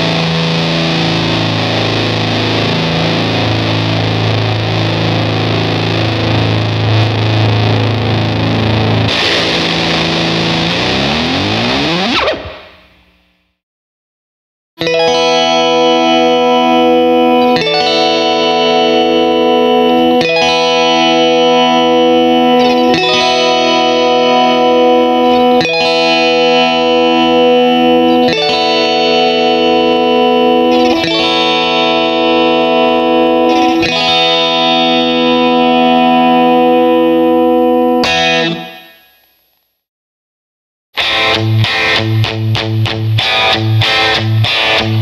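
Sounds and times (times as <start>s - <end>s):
electric guitar chiming chords: 0.0s - 13.0s, 14.8s - 39.3s, 41.0s - 45.0s.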